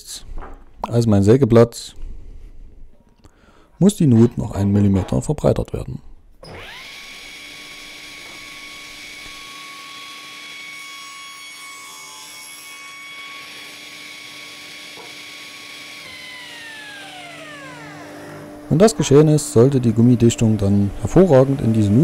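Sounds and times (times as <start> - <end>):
saw blade spinning down: 6.4 - 10.7, 14.8 - 22.0
table saw whine: 6.4 - 22.0.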